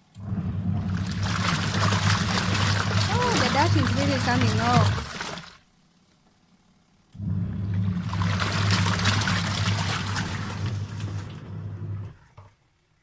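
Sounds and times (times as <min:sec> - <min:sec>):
washing machine motor humming: 0:00.0 - 0:05.7, 0:07.1 - 0:13.0
clothes sloshing in water: 0:00.9 - 0:05.6, 0:08.0 - 0:11.4.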